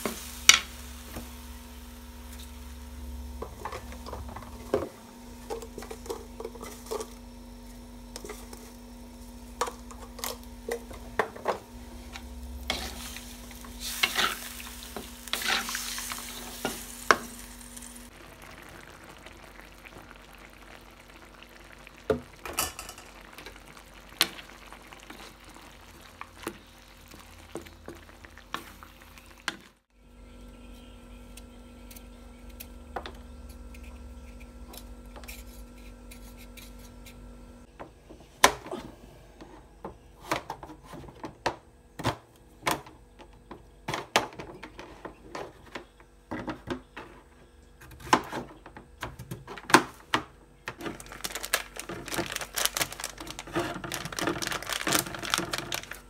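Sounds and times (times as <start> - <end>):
food sizzling in a wok: 0.0 - 5.2, 11.8 - 29.9
steady low hum: 0.0 - 24.2.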